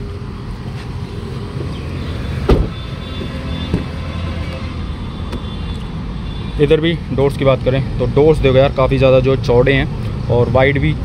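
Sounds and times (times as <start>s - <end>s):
road traffic rumble: 0.0s - 11.0s
heavy thump: 2.5s - 2.8s.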